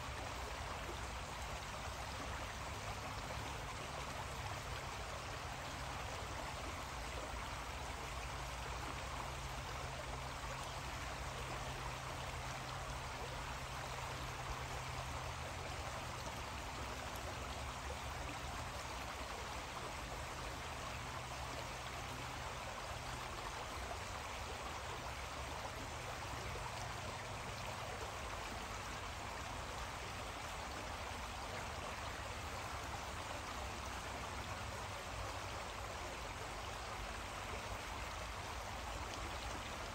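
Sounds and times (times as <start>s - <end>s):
creek water flowing: 0.0s - 39.9s.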